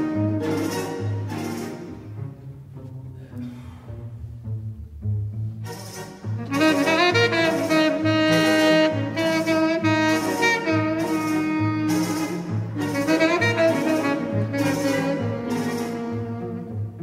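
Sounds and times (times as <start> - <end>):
tenor saxophone melody: 0.0 - 2.0, 6.3 - 17.0
orchestral accompaniment: 0.0 - 17.0.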